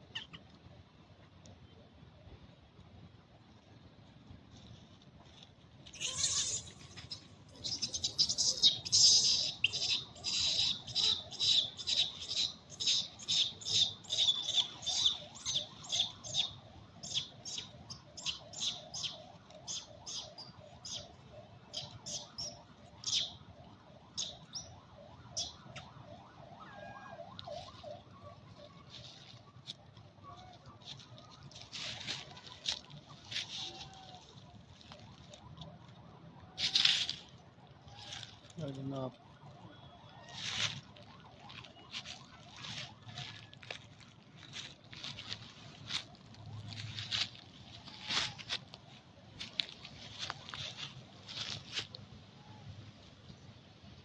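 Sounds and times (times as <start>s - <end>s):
fainter lower animal call: 5.9s - 16.1s
shrill high-pitched animal calls: 5.9s - 16.1s.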